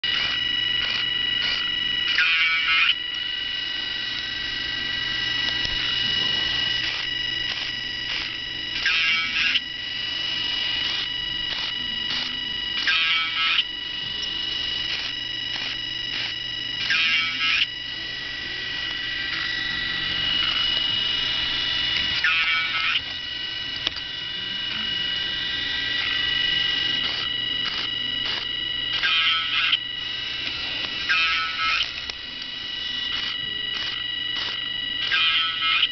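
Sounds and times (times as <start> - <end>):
robot car motor whine: 0.0 - 35.9
short buzzy bursts: 4.1 - 32.0.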